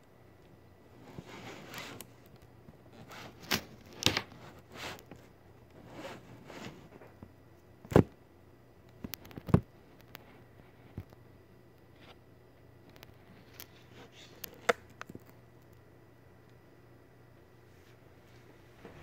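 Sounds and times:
rustling and handling noises: 0.3 - 8.1, 8.9 - 15.9.

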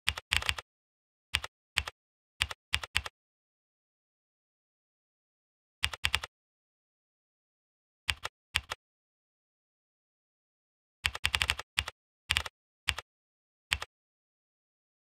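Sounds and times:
computer keyboard typing: 0.1 - 0.6, 1.4 - 3.1, 5.8 - 6.3, 8.1 - 8.8, 11.1 - 13.0.

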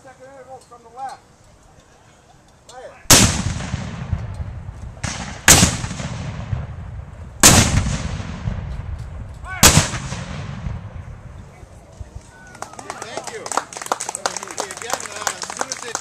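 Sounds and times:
cannon blasts with rumbling echo: 3.1 - 11.4.

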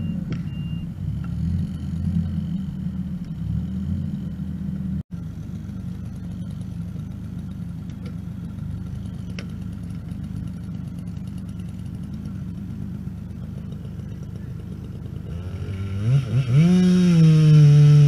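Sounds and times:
reversing beeper: 0.0 - 1.0
diesel engine running: 0.0 - 18.0.

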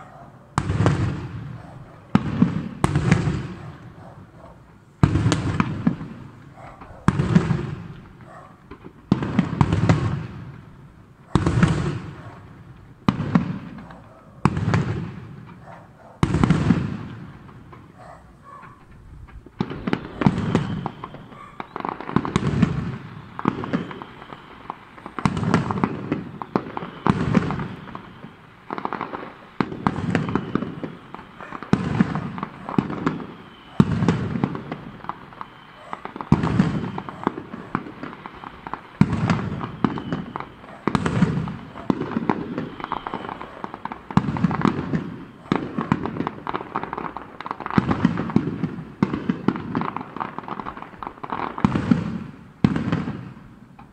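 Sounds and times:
firework shells bursting: 11.4 - 53.9.

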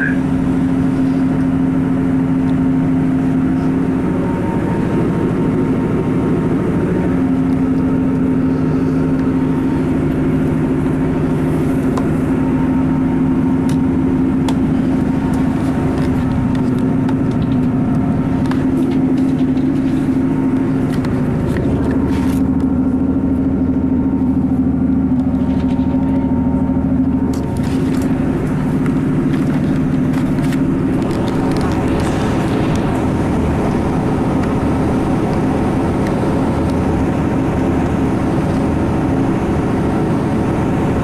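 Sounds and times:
train diesel engine drone: 0.0 - 41.0.

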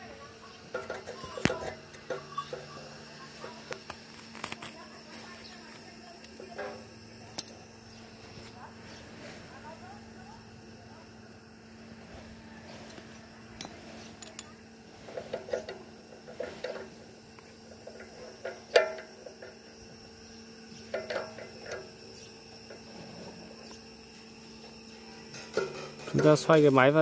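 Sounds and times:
faint steady hum: 0.0 - 27.0
metallic clicks and clinks: 12.8 - 14.6.

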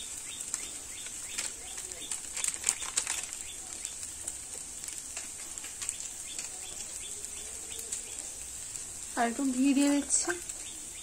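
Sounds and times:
plastic packet crinkling: 0.0 - 8.2
faint steady hiss: 0.0 - 11.0.

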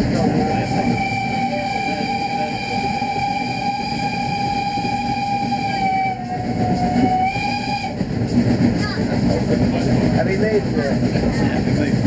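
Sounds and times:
steam locomotive whistle: 0.2 - 8.1.

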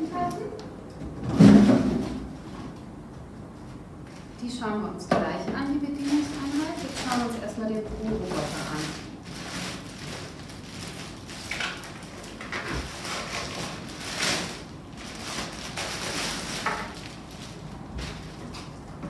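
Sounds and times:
plastic bag crinkling: 5.7 - 18.8.

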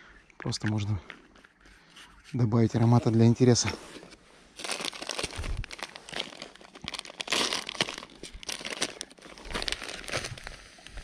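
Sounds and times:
dry groundbait crunching by hand: 4.6 - 10.4.

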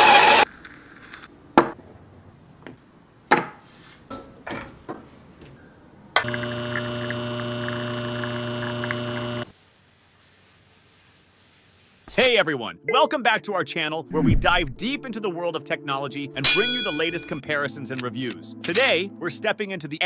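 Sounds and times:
espresso machine pump humming: 6.2 - 9.5.

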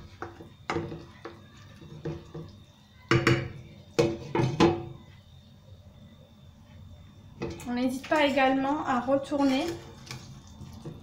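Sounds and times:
wooden spoon knocking on frying pan: 3.1 - 4.9.

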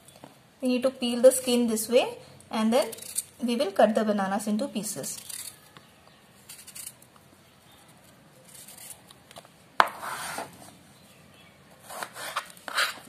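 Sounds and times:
knife scraping banana skin: 2.8 - 3.5, 5.0 - 5.8, 6.4 - 7.0, 8.4 - 9.2, 11.7 - 13.0
short scraping cuts: 11.8 - 13.0.

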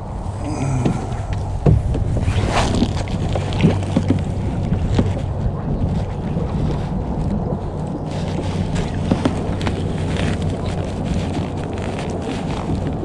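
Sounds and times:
wind rumbling on microphone: 0.0 - 13.0
knocks and taps on kayak: 0.8 - 2.3.

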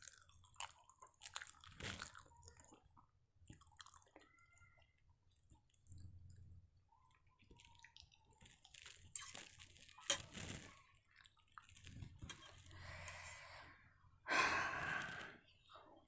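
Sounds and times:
chewing: 0.0 - 12.8.

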